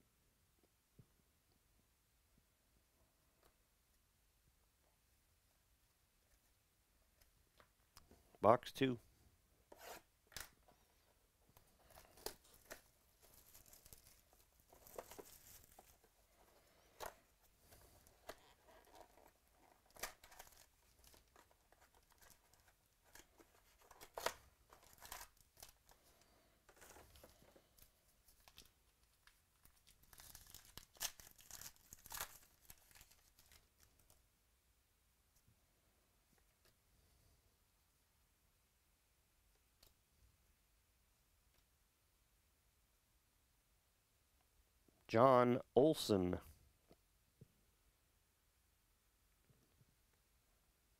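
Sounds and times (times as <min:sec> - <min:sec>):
card packs being torn open: 0:18.2 - 0:25.9, 0:29.6 - 0:34.1.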